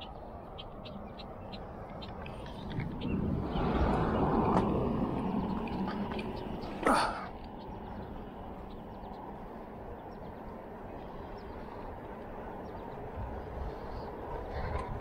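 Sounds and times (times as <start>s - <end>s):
rolling road noise: 0.0s - 15.0s
wind rushing: 2.4s - 6.6s.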